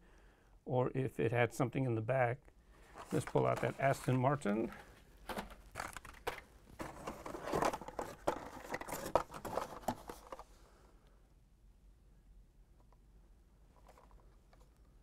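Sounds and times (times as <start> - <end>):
plastic packaging rustling and clacking: 2.9 - 10.6, 13.8 - 14.7.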